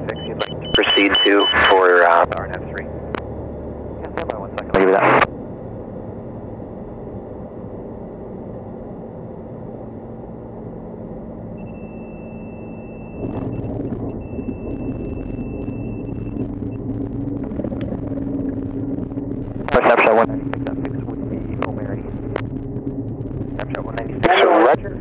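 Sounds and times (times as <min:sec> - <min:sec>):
aircraft engine idling: 0:00.0 - 0:25.0
steady high warning tone: 0:00.0 - 0:25.0
wheels rolling rumble with rattles: 0:13.0 - 0:25.0.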